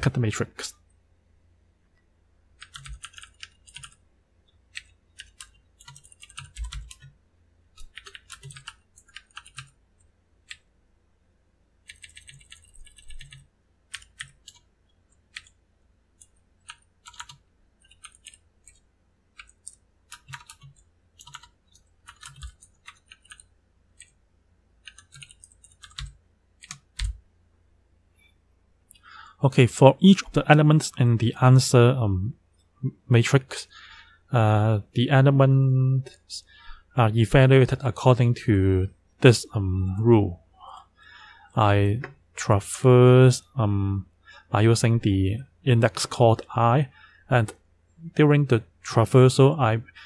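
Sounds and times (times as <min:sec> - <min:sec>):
typing on computer keyboard: 0:02.6 - 0:04.0, 0:04.7 - 0:07.2, 0:07.8 - 0:09.8, 0:11.8 - 0:15.6, 0:16.2 - 0:24.2, 0:24.8 - 0:27.2.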